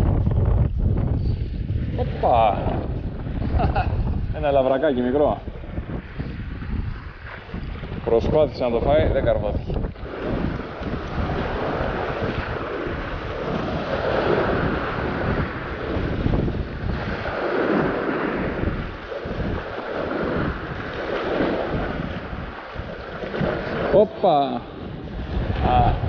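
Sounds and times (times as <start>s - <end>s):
wind buffeting microphone: 0.0s - 26.0s
waves washing over rocks: 6.0s - 26.0s.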